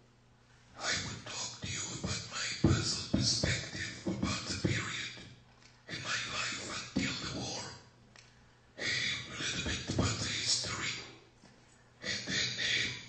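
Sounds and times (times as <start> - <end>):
person speaking: 0.8 - 5.2, 5.8 - 7.9, 8.8 - 11.3, 12.0 - 13.0.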